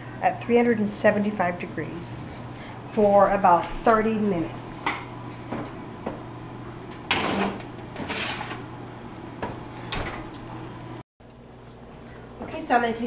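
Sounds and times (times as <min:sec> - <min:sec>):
oven door opening: 0:06.9 - 0:08.7, 0:09.4 - 0:10.6
baking sheet scraping on oven rack: 0:07.1 - 0:08.7.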